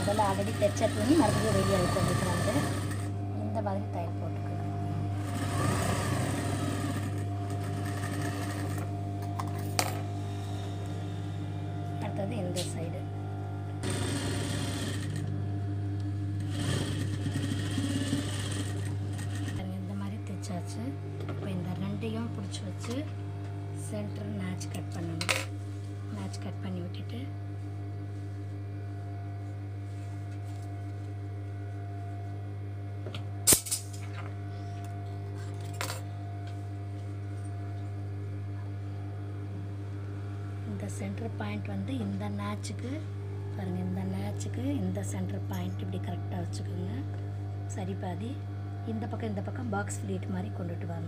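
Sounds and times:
sewing machine stitching: 0:00.0 - 0:03.1, 0:05.2 - 0:08.9, 0:13.8 - 0:15.3, 0:16.4 - 0:19.6
motor hum: 0:00.0 - 0:51.0.

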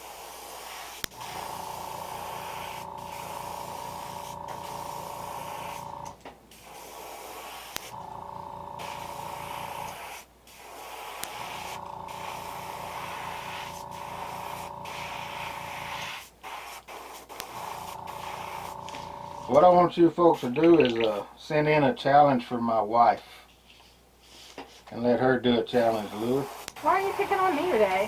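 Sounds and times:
airbrush spraying hiss: 0:00.0 - 0:08.0, 0:08.8 - 0:19.5, 0:26.1 - 0:28.0.

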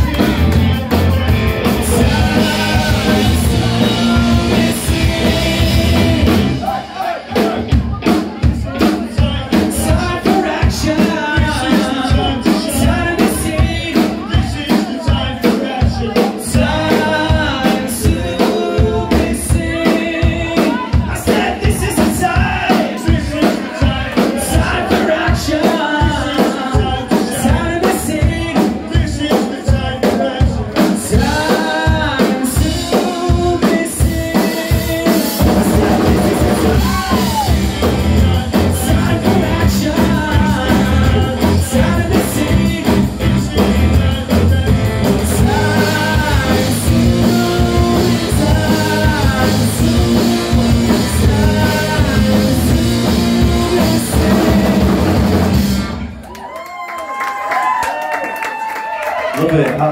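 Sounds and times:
electric guitar: 0:00.0 - 0:06.7, 0:30.6 - 0:56.6
man singing lead vocals: 0:00.0 - 0:55.6
drum kit steady beat: 0:00.0 - 0:56.2
bass guitar: 0:00.0 - 0:56.4.

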